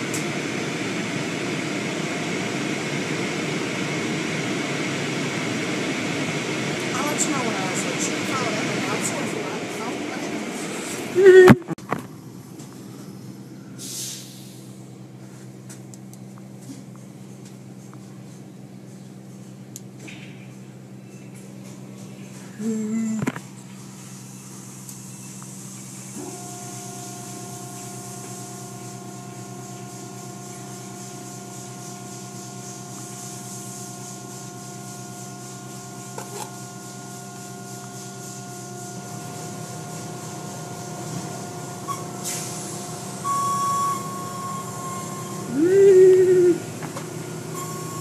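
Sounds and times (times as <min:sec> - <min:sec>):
steady whine: 0:00.0 - 0:18.6
car wash motor hum: 0:00.0 - 0:48.0.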